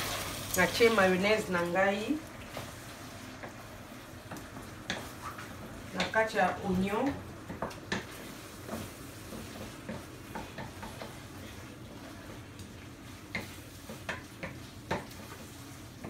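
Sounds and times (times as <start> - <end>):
food sizzling: 0.0 - 16.0
wooden spatula scraping frying pan: 4.3 - 16.0.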